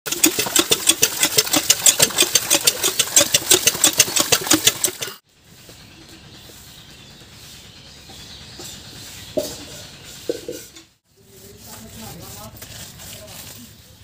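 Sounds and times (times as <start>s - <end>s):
hand pump clanking: 0.1s - 5.2s
faint outdoor background: 0.1s - 14.0s.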